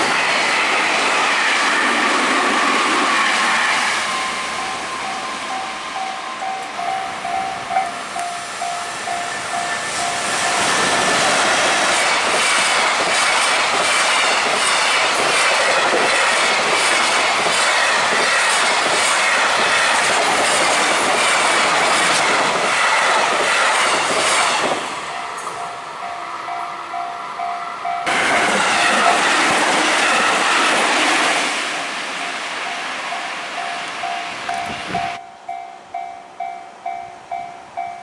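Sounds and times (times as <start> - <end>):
freight train passing: 0.0 - 38.0.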